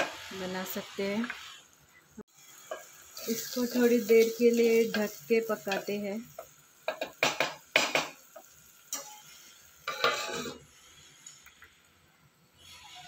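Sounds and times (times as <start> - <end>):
steel plate clattering on pot: 9.9 - 10.6
wooden spoon scraping clay pot: 9.9 - 10.6.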